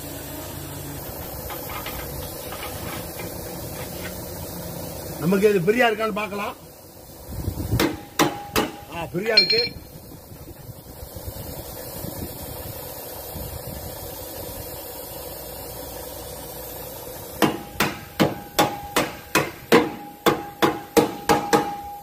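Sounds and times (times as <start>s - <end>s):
steady mechanical hum: 0.0s - 22.0s
hammer striking metal bolt: 7.8s - 9.8s, 17.4s - 22.0s.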